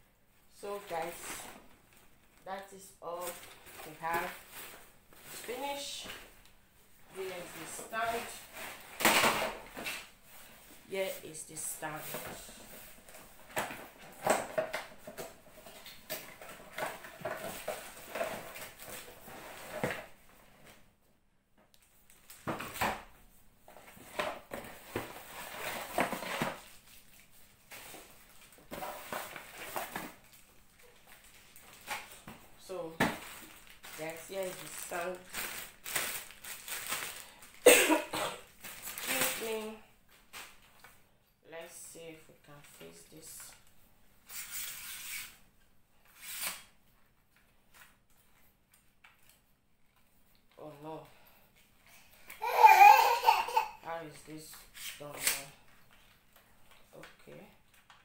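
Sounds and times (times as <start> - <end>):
cardboard packaging scraping and rustling: 23.9 - 32.2.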